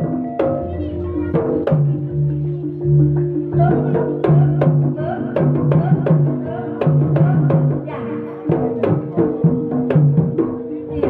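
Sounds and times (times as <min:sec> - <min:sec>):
drums: 0:02.9 - 0:11.0.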